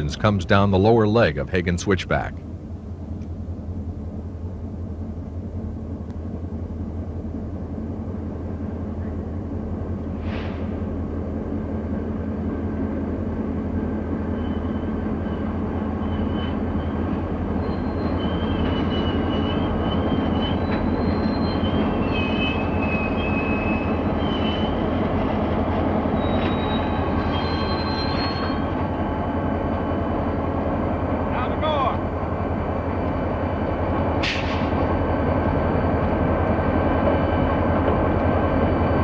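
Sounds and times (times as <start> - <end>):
diesel locomotive engines rumbling: 0.0 - 39.0
high wheel squeals: 14.2 - 30.2.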